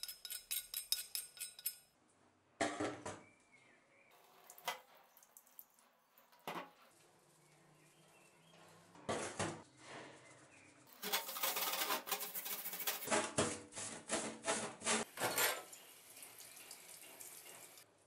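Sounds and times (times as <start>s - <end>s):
tap water running: 4.2s - 6.7s, 15.0s - 17.9s.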